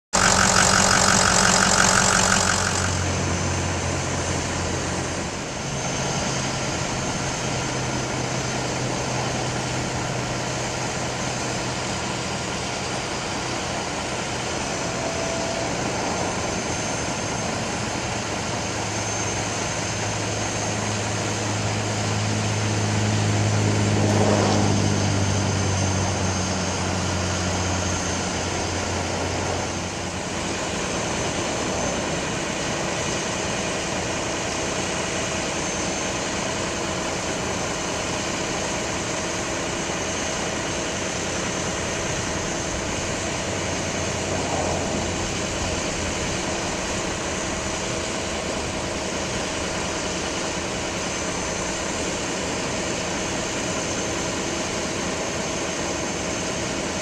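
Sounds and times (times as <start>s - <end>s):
diesel truck engine running: 0.0s - 16.8s.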